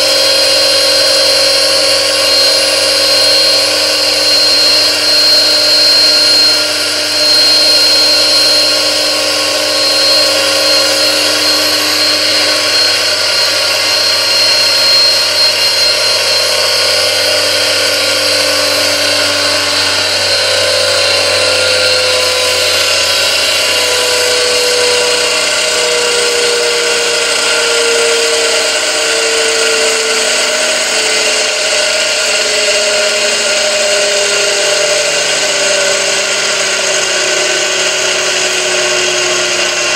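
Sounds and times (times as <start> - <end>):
hissing noise: 0.0 - 25.4
high-pitched gear whine: 0.0 - 39.9.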